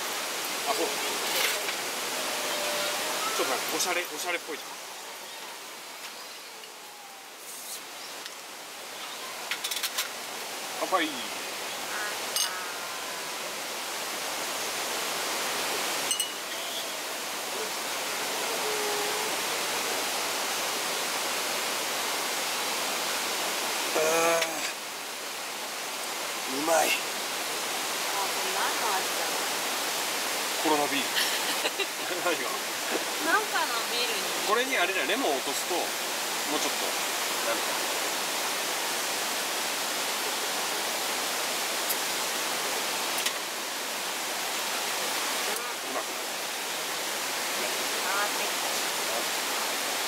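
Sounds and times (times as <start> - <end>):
mountain stream rushing: 0.0 - 50.0
person's brief voiced sound: 23.9 - 24.8.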